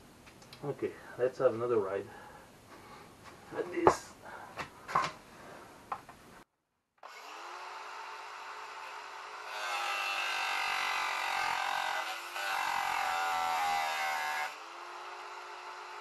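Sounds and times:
angle grinder grinding metal: 7.1s - 16.0s.

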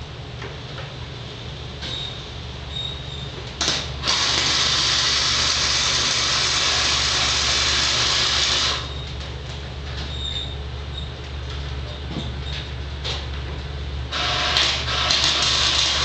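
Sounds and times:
welding arc hissing: 3.6s - 9.0s, 14.1s - 16.0s.

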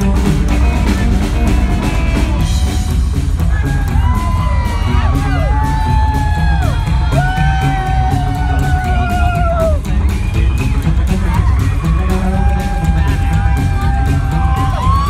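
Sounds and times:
live rockabilly band: 0.0s - 15.0s
audience whooping: 3.4s - 15.0s.

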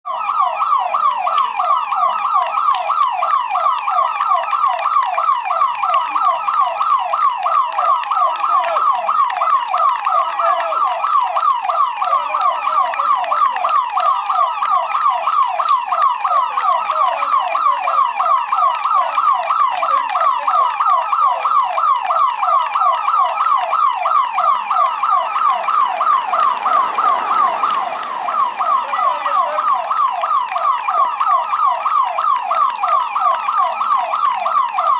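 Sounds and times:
siren wailing: 0.1s - 34.9s
car passing by: 25.6s - 30.2s.

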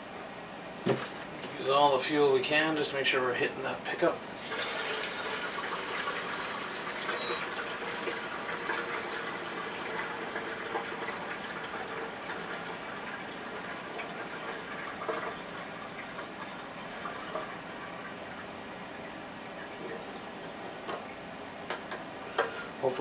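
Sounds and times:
fuel pouring into tank: 4.4s - 18.6s
loud high whistle: 4.6s - 7.4s.

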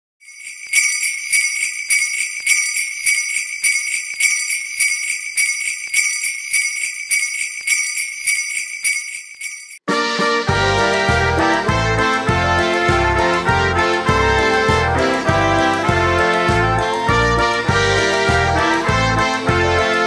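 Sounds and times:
jingle bells shaken: 0.2s - 9.8s
brass band playing a carol: 9.9s - 20.0s.

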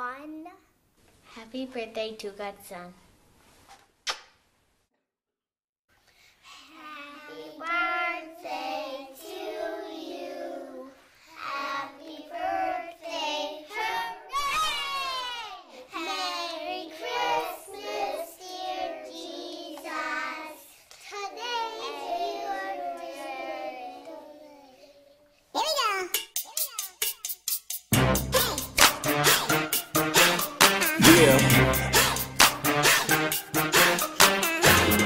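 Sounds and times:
children singing: 7.0s - 14.3s, 16.0s - 20.7s, 21.4s - 24.5s.

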